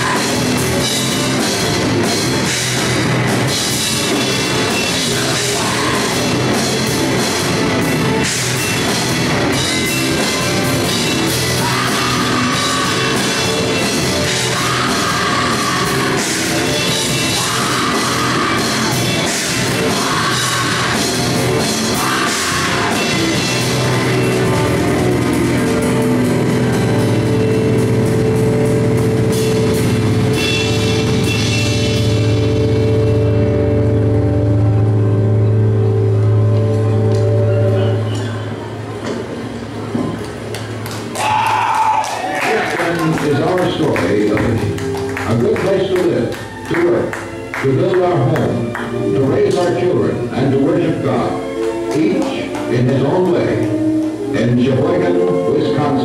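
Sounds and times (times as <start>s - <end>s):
drums and cymbals: 0.0s - 33.4s
electric guitars: 0.0s - 56.0s.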